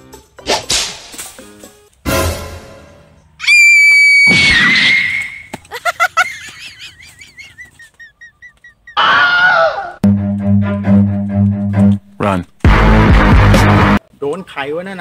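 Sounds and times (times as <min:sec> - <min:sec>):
bass-heavy music loop: 0:10.1 - 0:14.0.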